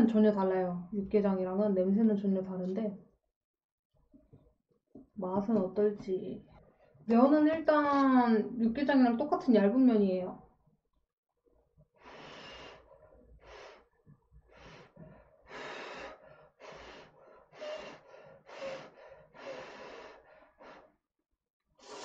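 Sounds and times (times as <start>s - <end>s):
person slurping noodles: 21.8s - 22.0s.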